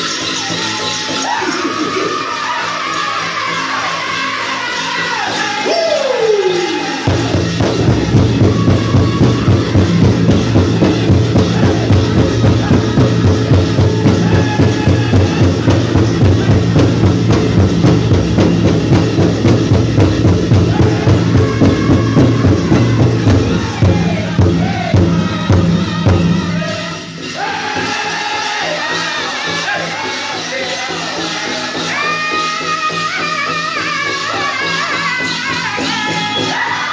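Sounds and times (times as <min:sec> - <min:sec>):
group singing: 0:00.0 - 0:36.9
big drum steady beat: 0:06.8 - 0:30.0.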